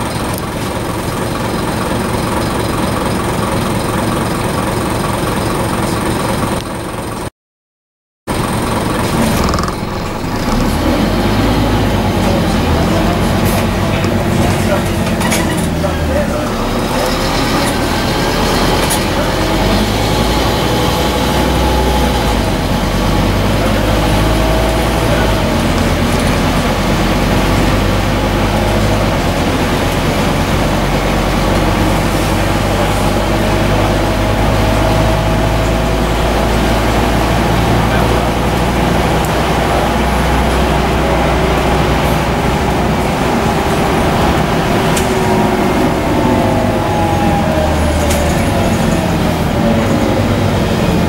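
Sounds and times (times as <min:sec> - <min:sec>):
bus engine rumble: 0:00.0 - 0:07.3, 0:08.3 - 0:51.0
road noise: 0:00.0 - 0:07.3, 0:08.3 - 0:51.0
faint engine whine: 0:08.3 - 0:51.0.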